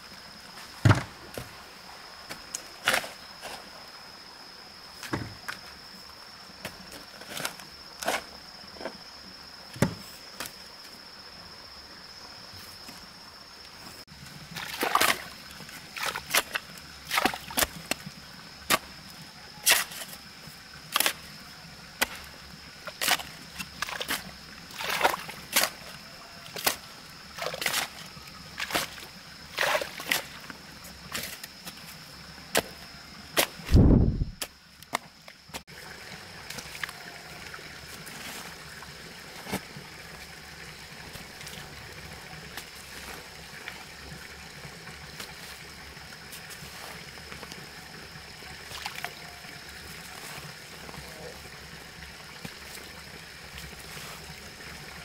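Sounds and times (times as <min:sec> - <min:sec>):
high insect whine: 0:00.0 - 0:55.0
shovel chopping into wet soil: 0:19.6 - 0:20.0.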